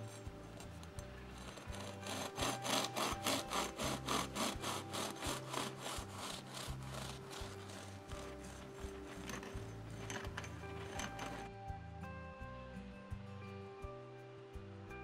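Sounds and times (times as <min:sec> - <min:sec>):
bread knife sawing through crust: 0:00.0 - 0:11.5.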